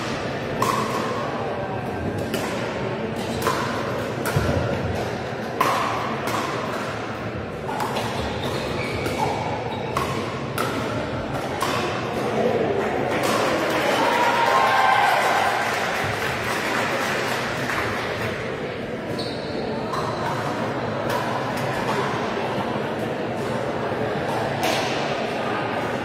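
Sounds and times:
background hubbub: 0:00.0 - 0:26.0.

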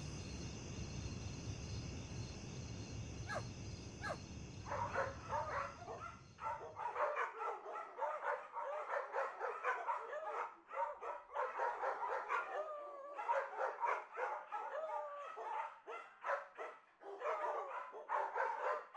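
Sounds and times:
small dogs barking: 0:03.2 - 0:18.9.

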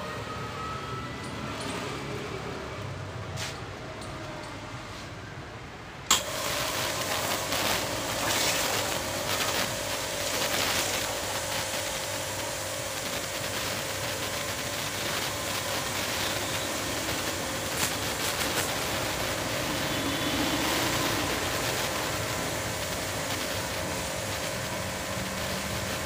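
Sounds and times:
pressure washer pump whine: 0:00.0 - 0:03.4, 0:06.1 - 0:26.0
water jet spraying: 0:06.1 - 0:26.0.

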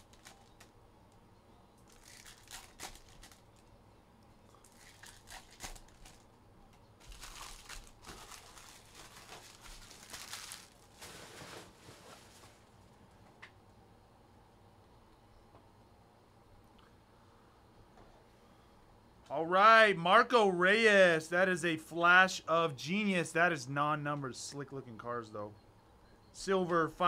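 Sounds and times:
foil wrappers tearing and crinkling: 0:00.0 - 0:00.7, 0:01.8 - 0:03.6, 0:04.6 - 0:06.2, 0:07.0 - 0:12.7.

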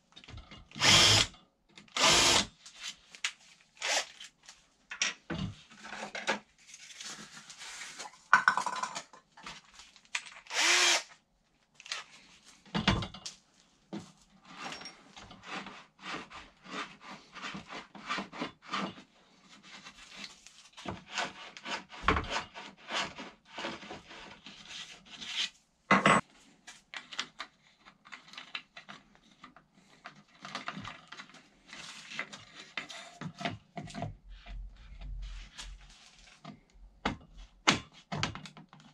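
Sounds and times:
rubbing and scraping on wood: 0:14.0 - 0:25.6.

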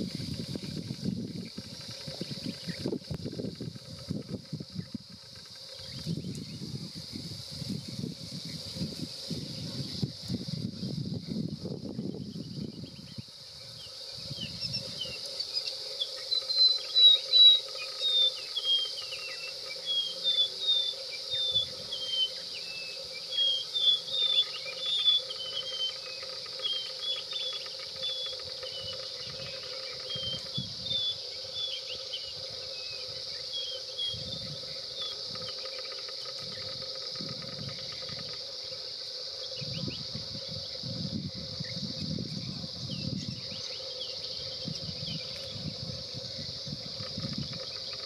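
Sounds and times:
steady high hiss: 0:00.0 - 0:48.0
small bird chirping: 0:12.1 - 0:32.3.

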